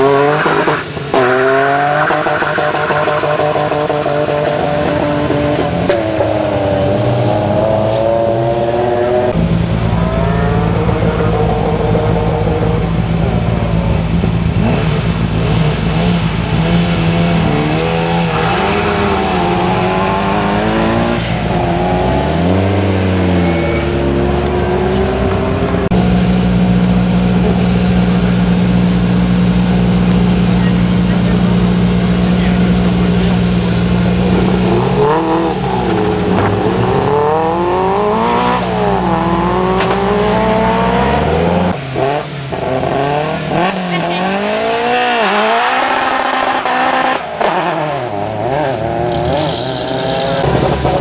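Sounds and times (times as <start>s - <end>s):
rally car accelerating: 0.0s - 51.0s
rally car idling and revving: 0.0s - 51.0s.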